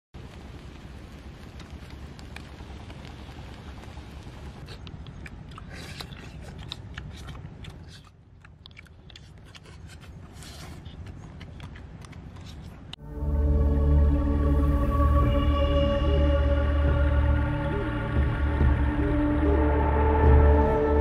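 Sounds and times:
eating clicks and smacks: 0:04.6 - 0:13.0
low background rumble: 0:10.2 - 0:21.0.

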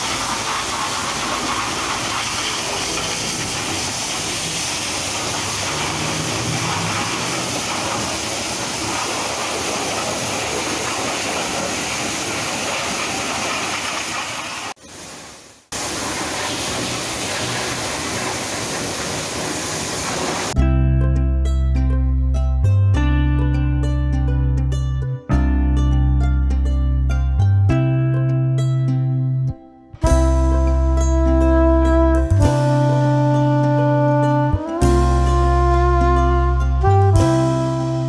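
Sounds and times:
pressure washer spray hissing: 0:00.0 - 0:20.6.

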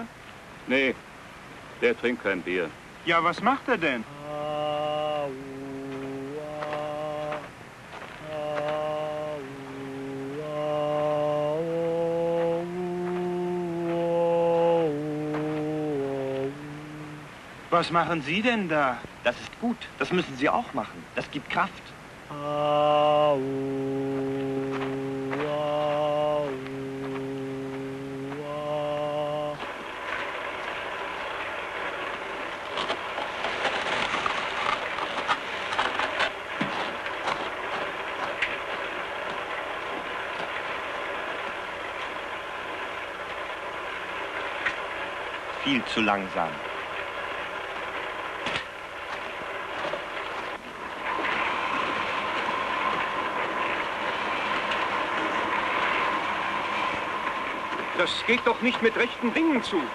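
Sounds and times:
drone-like tone: 0:04.1 - 0:07.5, 0:08.2 - 0:17.4, 0:22.3 - 0:29.6.

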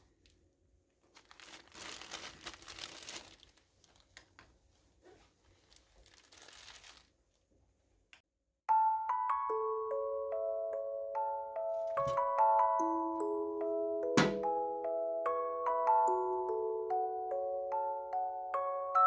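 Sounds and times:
plastic bags crinkling: 0:01.0 - 0:04.4, 0:05.5 - 0:07.2
glockenspiel-like chiming tune: 0:08.7 - 0:19.0.

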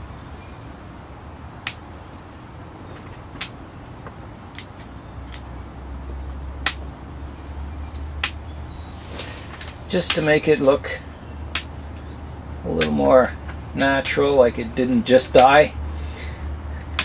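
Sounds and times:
scissors snipping twigs: 0:08.0 - 0:08.4.

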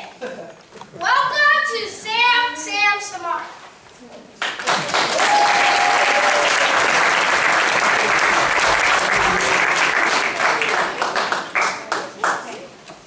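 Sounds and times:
audience applauding: 0:04.4 - 0:12.5.

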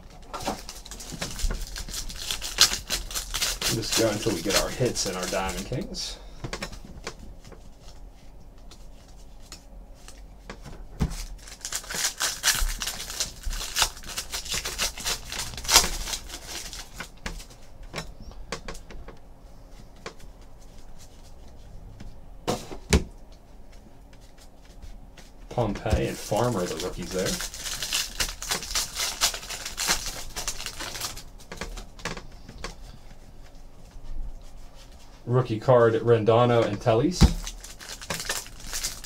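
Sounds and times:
foil wrappers crinkling and tearing: 0:00.0 - 0:06.8, 0:11.0 - 0:17.6, 0:25.6 - 0:31.9, 0:36.6 - 0:39.0
cards rubbing and flicking: 0:00.4 - 0:06.0.

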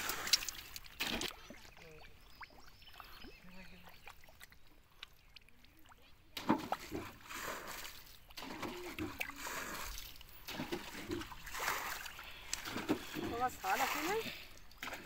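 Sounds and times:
hands squelching in mud: 0:00.0 - 0:02.0.

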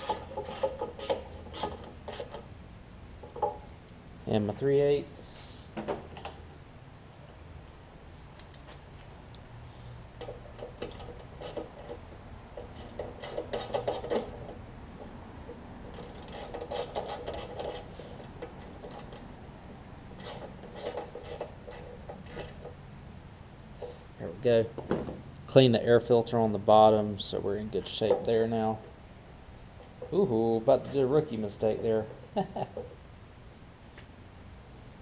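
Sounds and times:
ratchet wrench clicking: 0:00.0 - 0:02.4, 0:10.3 - 0:11.8, 0:12.6 - 0:14.3, 0:15.9 - 0:19.3, 0:20.2 - 0:22.7.

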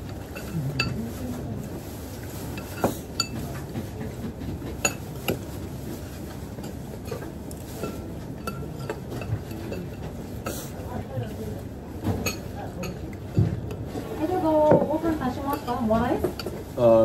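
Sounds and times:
utensils clinking on ceramic bowl: 0:00.2 - 0:01.3, 0:02.4 - 0:03.8, 0:04.6 - 0:05.5, 0:06.1 - 0:10.6, 0:12.0 - 0:13.8.

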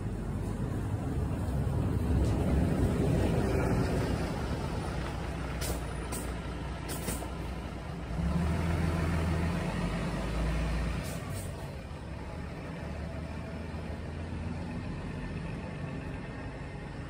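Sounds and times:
vehicle engine rumble: 0:00.0 - 0:17.0.

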